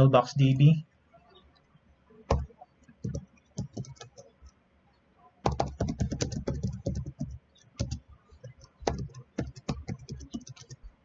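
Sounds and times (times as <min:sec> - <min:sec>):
keyboard typing: 0:02.3 - 0:04.4, 0:05.4 - 0:10.9.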